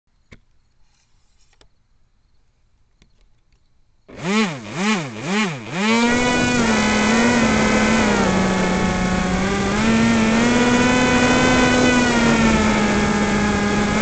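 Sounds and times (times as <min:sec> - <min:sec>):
model plane motor whining: 0:04.1 - 0:14.0.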